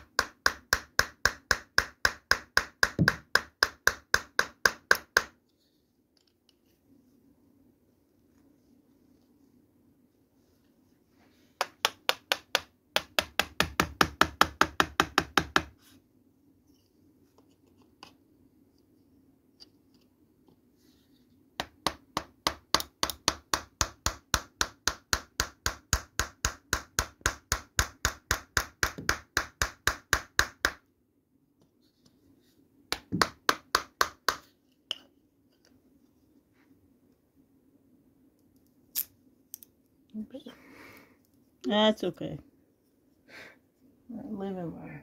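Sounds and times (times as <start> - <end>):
mallet tapping wood chisel: 0.0 - 5.4, 11.6 - 15.7, 21.6 - 30.8, 32.9 - 35.0.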